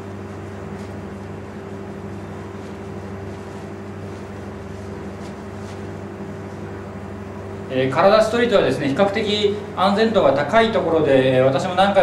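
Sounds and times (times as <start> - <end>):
low machine hum: 0.0 - 12.0
cloth rustling: 0.2 - 6.7.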